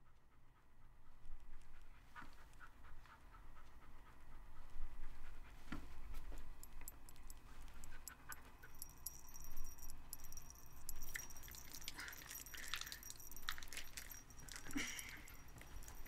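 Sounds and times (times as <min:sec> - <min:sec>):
dog panting: 0:00.0 - 0:16.0
collar tags jingling: 0:06.3 - 0:16.0.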